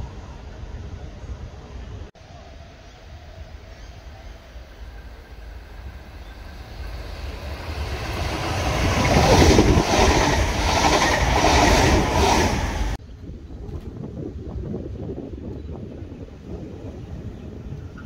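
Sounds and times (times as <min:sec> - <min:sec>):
electric train passing: 0:00.0 - 0:13.0
wind noise: 0:03.1 - 0:18.0.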